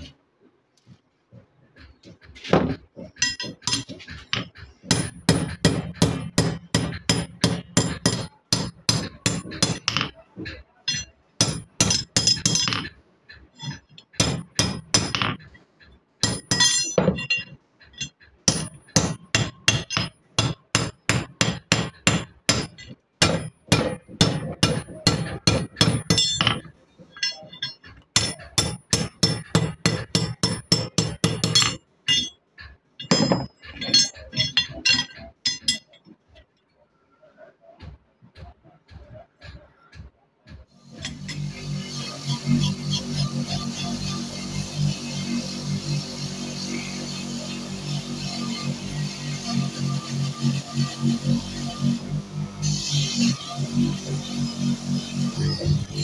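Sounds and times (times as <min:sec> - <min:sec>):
hammer striking metal on anvil: 0:02.6 - 0:13.0, 0:13.6 - 0:15.6, 0:16.2 - 0:36.1.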